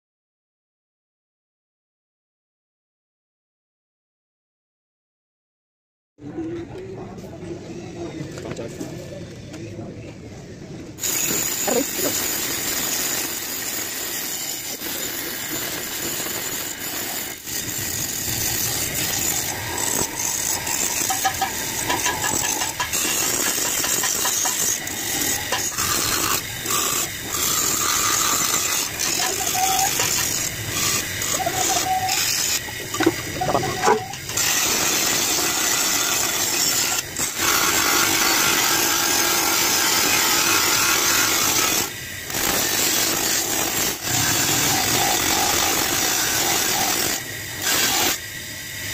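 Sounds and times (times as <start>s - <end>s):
grinder wheel grinding metal: 11.0s - 48.9s.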